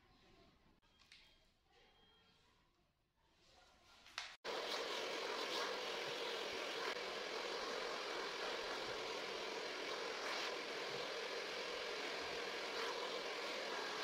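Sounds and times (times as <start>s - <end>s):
hair dryer running: 4.4s - 14.0s.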